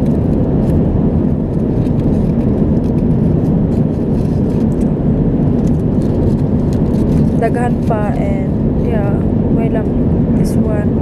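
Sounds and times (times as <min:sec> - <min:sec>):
aluminium foil crinkling: 0:00.0 - 0:08.2
airliner cabin rush: 0:00.0 - 0:09.2.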